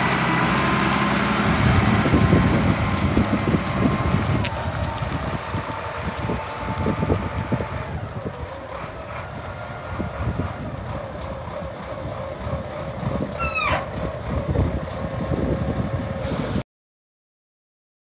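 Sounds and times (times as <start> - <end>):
forklift diesel engine rumble: 0.0 - 16.6
high squeal sliding down: 13.4 - 13.9.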